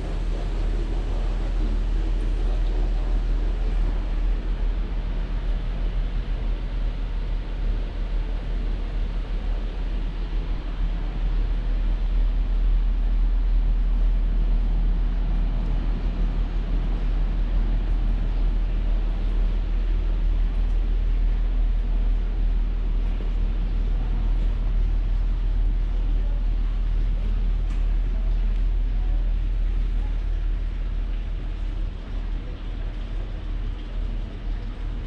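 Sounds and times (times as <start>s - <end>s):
low outdoor rumble: 0.0s - 35.0s.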